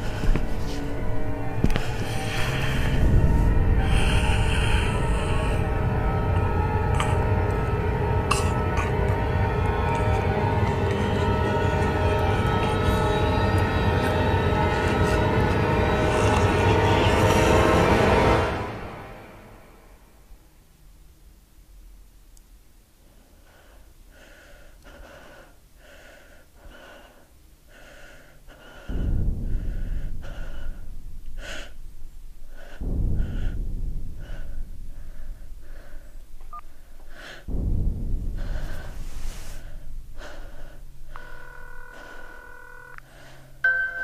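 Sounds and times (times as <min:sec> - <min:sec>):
gasping breaths: 0:00.0 - 0:18.4, 0:23.1 - 0:37.5, 0:38.3 - 0:44.0
deep low hit: 0:00.0 - 0:19.0, 0:28.9 - 0:42.7
bright chiming tune: 0:43.6 - 0:44.0.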